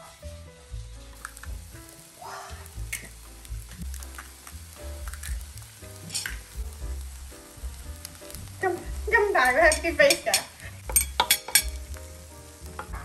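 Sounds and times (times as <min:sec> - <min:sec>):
background music: 0:00.0 - 0:13.0
rice and eggs sizzling: 0:00.0 - 0:13.0.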